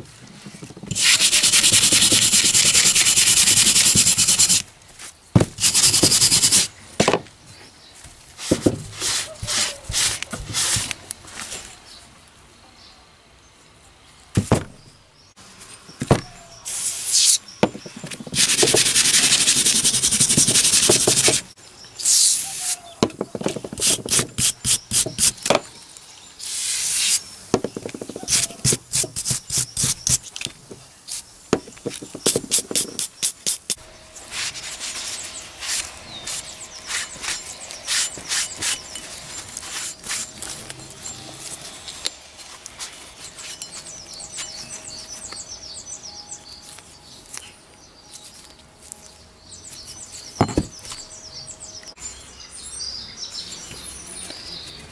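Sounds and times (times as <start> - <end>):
brush scrubbing metal: 0.9 - 4.6, 5.6 - 6.7, 18.2 - 21.5, 32.0 - 40.5
cloth rubbing metal: 0.9 - 4.6.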